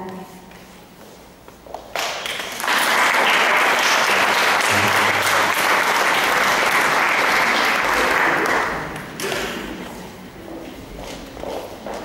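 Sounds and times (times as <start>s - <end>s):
audience applauding: 2.2s - 9.6s.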